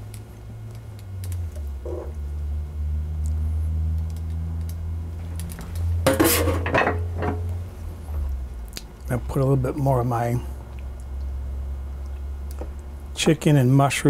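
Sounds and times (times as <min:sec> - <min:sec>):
steady low hum: 0:00.0 - 0:14.0
cookware clattering: 0:06.1 - 0:07.4.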